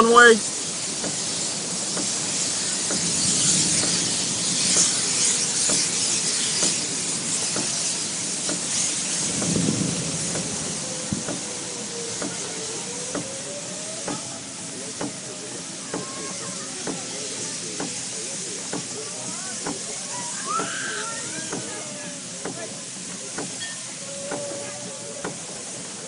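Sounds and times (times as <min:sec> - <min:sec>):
road and wind noise in car: 0:00.0 - 0:13.4.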